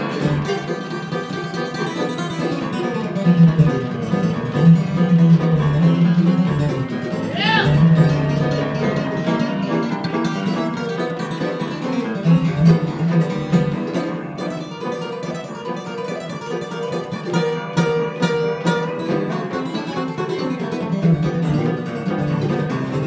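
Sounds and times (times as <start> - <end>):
acoustic guitar picking: 0.0 - 23.0
mandolin picking: 0.0 - 23.0.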